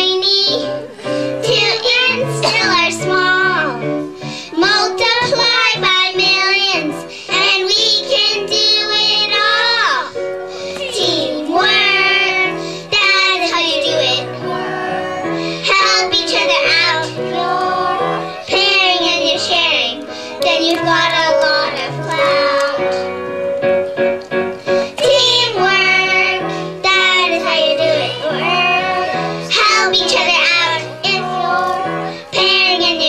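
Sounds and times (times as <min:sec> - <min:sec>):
children singing into a microphone: 0:00.0 - 0:23.1, 0:24.7 - 0:33.0
musical accompaniment with bass line: 0:07.4 - 0:33.0.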